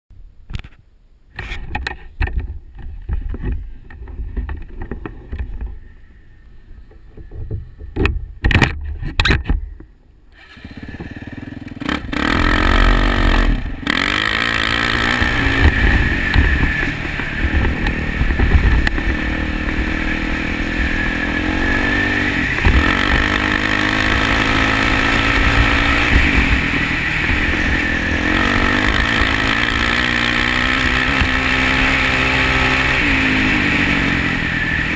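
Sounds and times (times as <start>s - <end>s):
dirt bike engine revving: 10.3s - 34.9s
wind rumble: 10.8s - 34.9s.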